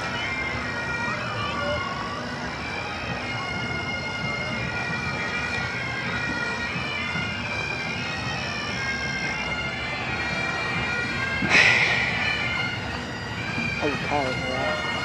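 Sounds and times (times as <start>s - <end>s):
bagpipes playing a tune: 0.0s - 15.0s
loud burst of noise: 11.5s - 13.0s.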